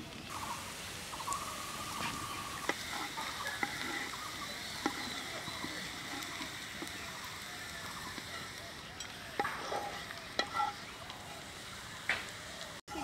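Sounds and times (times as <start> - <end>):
bird calling: 0.0 - 13.0
onions sizzling in oil: 0.0 - 13.0
wooden spatula knocking pan: 2.6 - 7.1.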